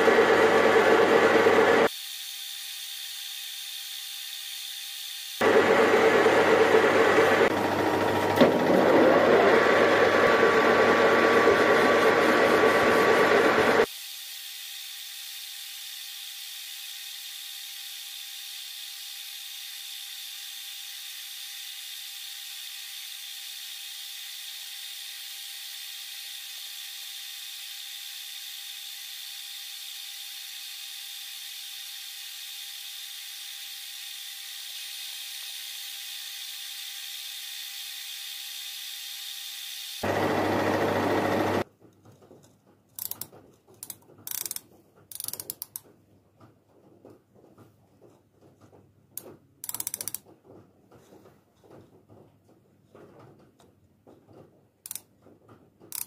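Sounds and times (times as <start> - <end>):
metal lathe cutting steel: 0.0 - 2.9, 5.4 - 13.9, 36.1 - 41.6
micrometer ratchet clicks: 43.0 - 45.8, 49.2 - 50.2, 54.9 - 55.1.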